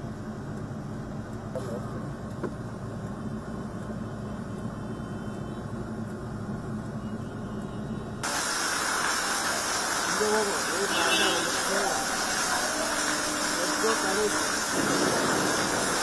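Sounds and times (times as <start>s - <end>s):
muffled vehicle engines rumbling: 0.0s - 8.3s, 8.9s - 16.0s
rushing water and rain: 8.2s - 16.0s.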